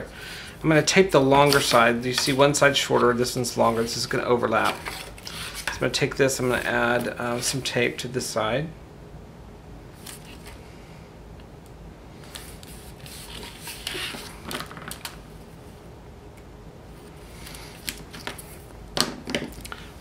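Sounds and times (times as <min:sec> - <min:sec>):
tape rustling and crackling: 0:12.2 - 0:15.2.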